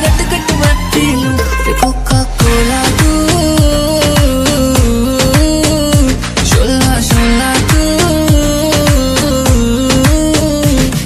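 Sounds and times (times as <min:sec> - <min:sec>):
deep drum hits: 0:02.1 - 0:05.0.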